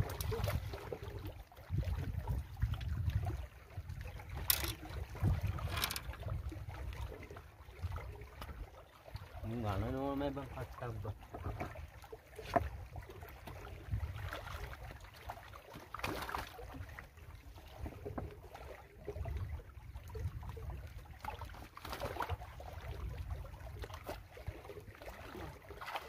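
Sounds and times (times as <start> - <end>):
wind rumbling on microphone: 0.0 - 9.8, 12.5 - 15.0, 19.0 - 24.3
waves lapping against rocks: 0.0 - 26.0.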